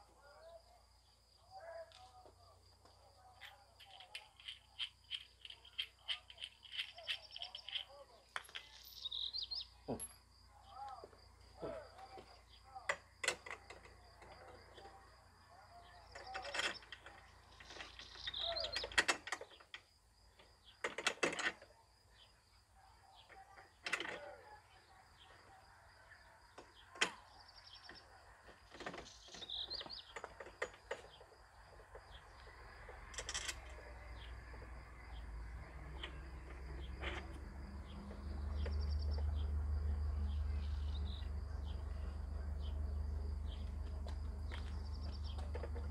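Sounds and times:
birds chirping: 0:00.0 - 0:45.9
clicks and knocks of parts: 0:02.8 - 0:10.2, 0:11.6 - 0:15.0, 0:16.0 - 0:21.7, 0:23.3 - 0:24.4, 0:26.6 - 0:34.7, 0:35.9 - 0:39.4, 0:43.7 - 0:45.9.

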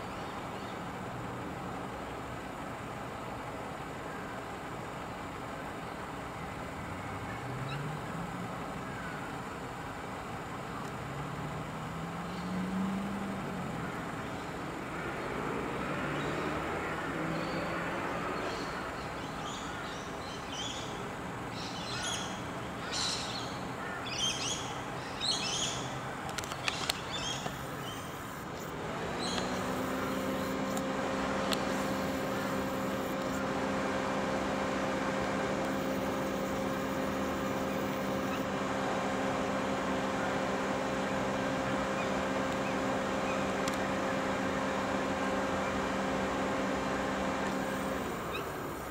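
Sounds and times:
low engine hum: 0:00.0 - 0:48.9
small birds chirping: 0:16.0 - 0:48.9.

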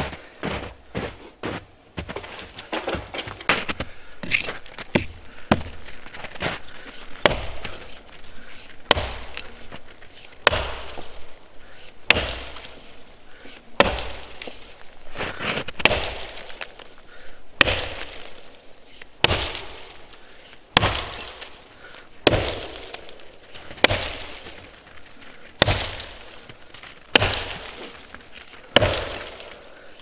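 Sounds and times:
axe chopping log: 0:07.2 - 0:07.9, 0:08.8 - 0:09.8, 0:10.4 - 0:11.1, 0:12.1 - 0:12.8, 0:13.8 - 0:14.6, 0:15.5 - 0:16.8, 0:17.6 - 0:18.5, 0:19.2 - 0:20.1, 0:20.7 - 0:21.6, 0:22.2 - 0:24.6, 0:25.6 - 0:29.6.

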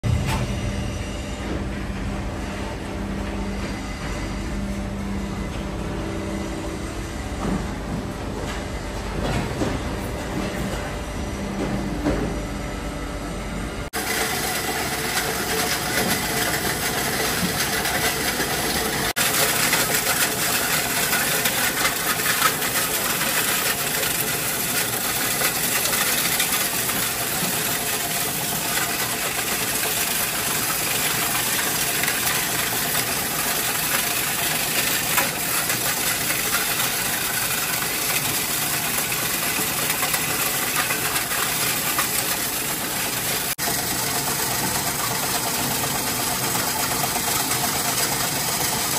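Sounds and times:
granulator motor running: 0:00.0 - 0:48.9.

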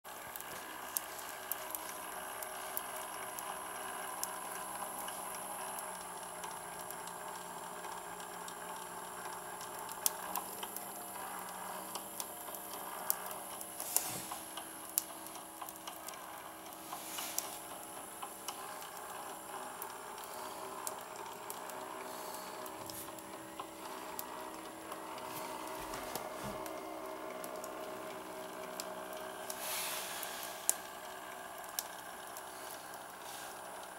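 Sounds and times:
valve gear ticking: 0:00.1 - 0:33.9
model steam engine hissing: 0:13.7 - 0:15.4, 0:16.5 - 0:18.9, 0:29.5 - 0:31.0, 0:32.4 - 0:33.9.

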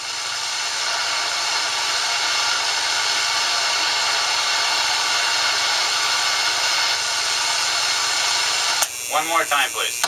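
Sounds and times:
radio static hiss: 0:08.8 - 0:10.0.

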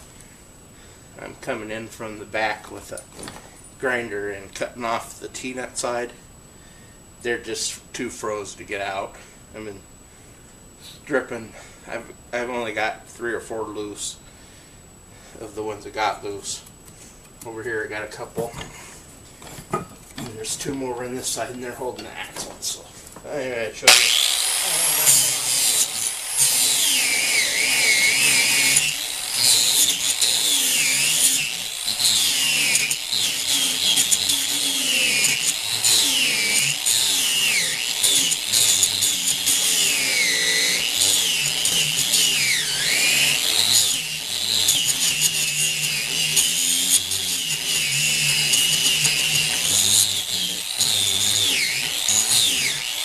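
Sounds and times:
angle grinder cutting steel: 0:23.8 - 0:53.0.

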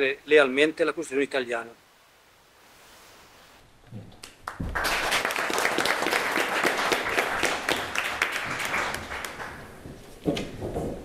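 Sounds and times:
people applauding: 0:04.2 - 0:09.8.

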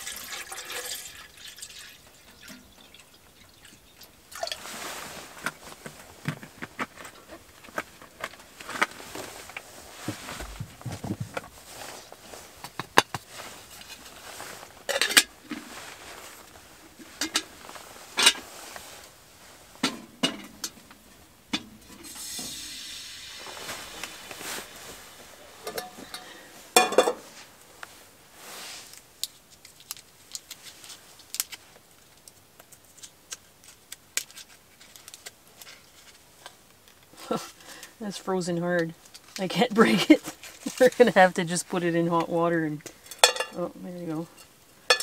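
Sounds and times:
hiss: 0:22.0 - 0:24.8
metal cookware clanking on stove: 0:25.7 - 0:27.2, 0:43.1 - 0:43.6.

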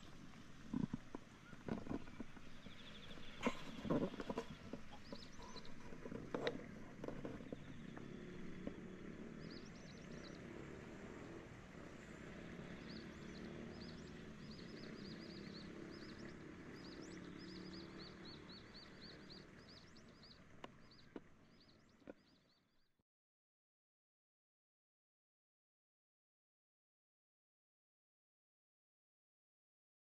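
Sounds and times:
small bird chirping: 0:00.7 - 0:10.4, 0:12.7 - 0:22.6.

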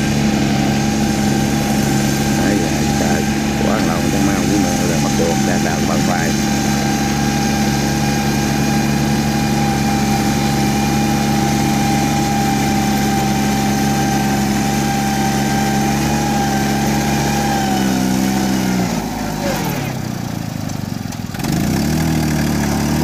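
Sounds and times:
high whine: 0:00.0 - 0:14.1
diesel engine running: 0:00.0 - 0:23.0.

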